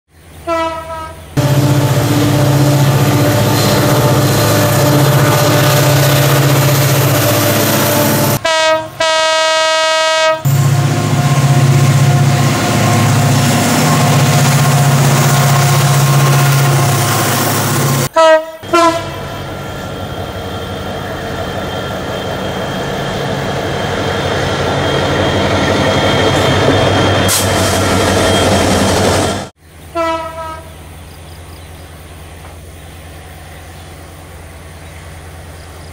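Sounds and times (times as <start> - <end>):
locomotive engine humming: 0.2 - 35.9
train rumbling: 0.2 - 35.9
train horn blast: 0.4 - 19.6, 29.9 - 30.8.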